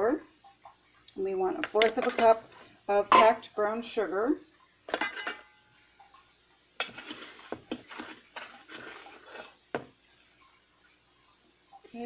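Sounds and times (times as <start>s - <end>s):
utensil clink: 4.9s - 5.7s
sugar scooping and scraping: 6.8s - 9.7s.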